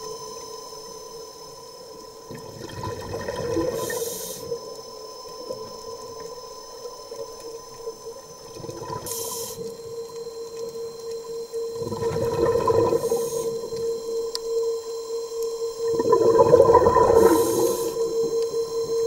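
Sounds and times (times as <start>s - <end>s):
underwater scooter motor whine: 0.0s - 19.0s
diver breathing through regulator: 3.7s - 4.6s, 16.7s - 18.2s.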